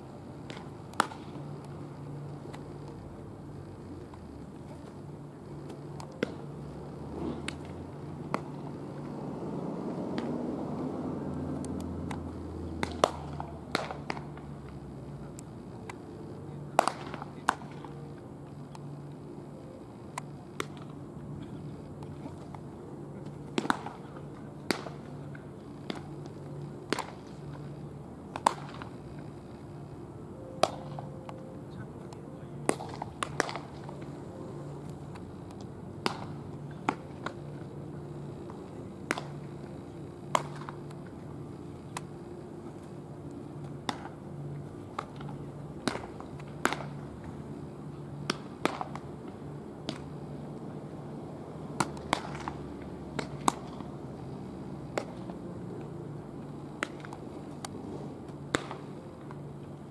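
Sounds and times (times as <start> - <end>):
steady low hum: 0.0 - 59.9
baseballs smacking into gloves: 0.4 - 1.4, 5.7 - 6.4, 7.2 - 8.7, 10.1 - 10.4, 11.6 - 14.4, 16.7 - 17.9, 20.2 - 22.5, 23.2 - 25.1, 25.8 - 26.1, 26.9 - 27.3, 28.3 - 28.9, 30.6 - 31.4, 32.6 - 34.1, 35.1 - 37.4, 38.5 - 39.7, 40.3 - 41.1, 43.6 - 44.2, 44.9 - 47.0, 48.2 - 50.1, 51.8 - 53.9, 54.9 - 55.4, 56.8 - 59.4.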